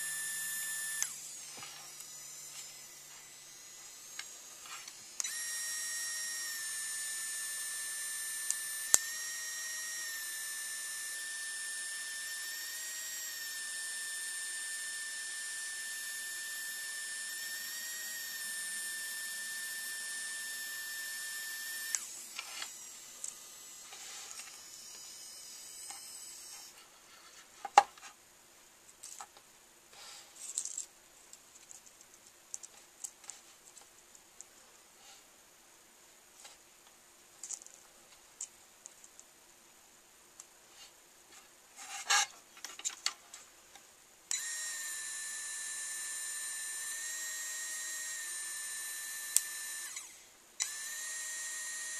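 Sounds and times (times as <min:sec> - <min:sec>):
pen motor whining: 0:00.0 - 0:26.8, 0:44.3 - 0:51.9.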